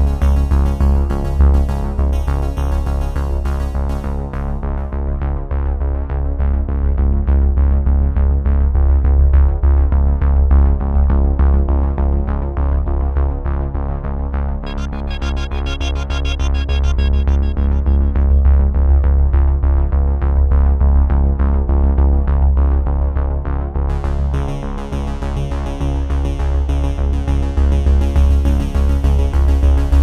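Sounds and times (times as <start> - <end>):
electronic synthesizer music: 14.6 - 19.3.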